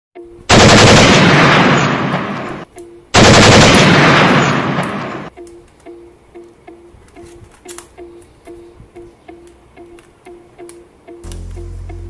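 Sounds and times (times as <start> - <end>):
automatic gunfire bursts: 0.5 - 2.6, 3.2 - 5.3.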